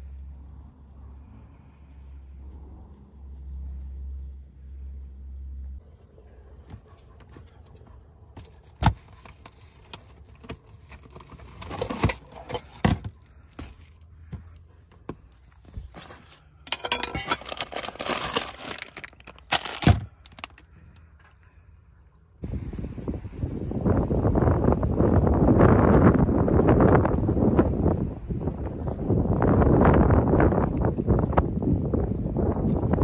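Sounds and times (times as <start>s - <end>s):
plastic containers clunking and scraping: 8.4s - 14.4s, 15.0s - 20.6s
plastic packaging crinkling: 16.7s - 20.6s.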